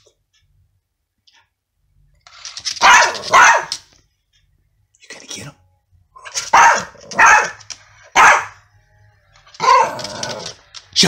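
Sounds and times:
small dog barking: 2.8 - 3.8, 6.3 - 8.6, 9.6 - 10.2.

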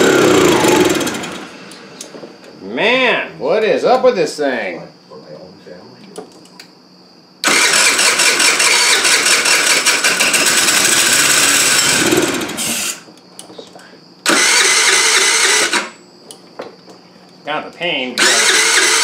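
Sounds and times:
scooter starter cranking engine: 0.0 - 1.8, 7.4 - 13.0, 14.3 - 16.0, 18.2 - 19.0.

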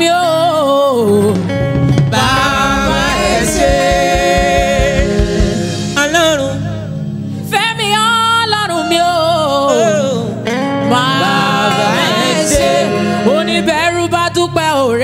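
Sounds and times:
held chords: 2.0 - 7.4
male backing singers: 2.1 - 6.2, 10.8 - 13.8
woman singing gospel: 2.1 - 15.0.

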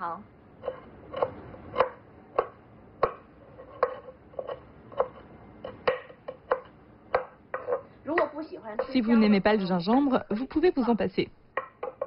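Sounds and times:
knife chopping on wooden board: 0.6 - 9.0, 11.6 - 12.0.

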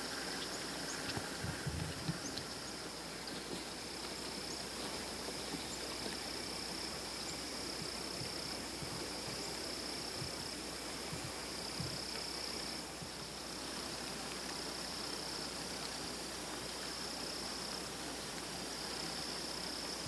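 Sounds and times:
insect chorus trilling: 0.0 - 20.0
soft low thumps: 7.7 - 12.1.

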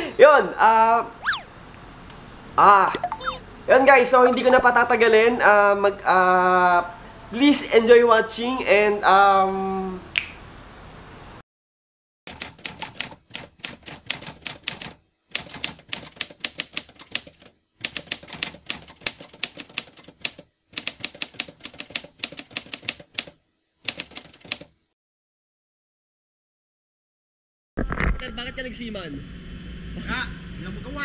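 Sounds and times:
keyboard typing clicks: 12.3 - 24.7.

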